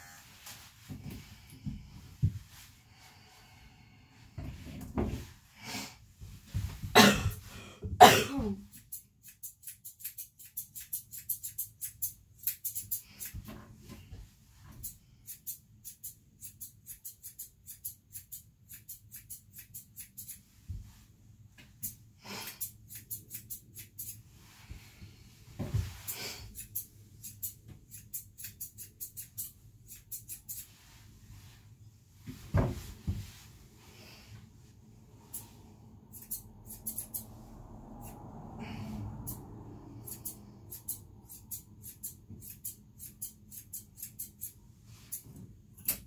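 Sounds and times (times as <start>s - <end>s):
scissors snipping: 14.8s - 20.4s, 26.5s - 30.7s, 36.1s - 37.3s, 40.0s - 45.2s.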